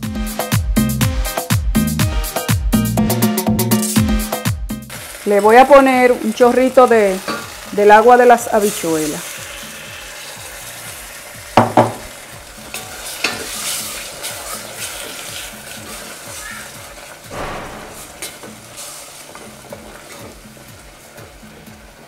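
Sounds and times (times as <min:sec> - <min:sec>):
vegetables sizzling in a pot: 0:04.8 - 0:22.0.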